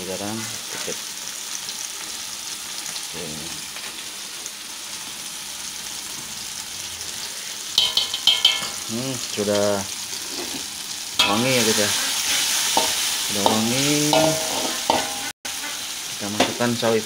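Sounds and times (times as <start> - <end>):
tomatoes sizzling in hot oil: 0.0 - 17.0
spatula scraping a wok: 10.1 - 16.1.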